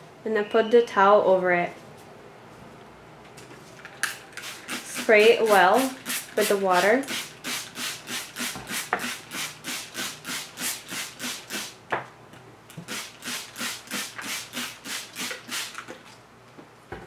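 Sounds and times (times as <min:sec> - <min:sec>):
spray bottle squirting water: 0:04.0 - 0:11.8, 0:12.8 - 0:16.0.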